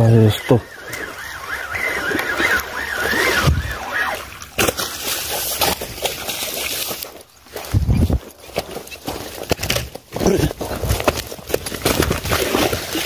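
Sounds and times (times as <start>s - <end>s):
wavering high tone: 0.0s - 4.5s
fish thrashing and splashing water: 0.6s - 13.0s.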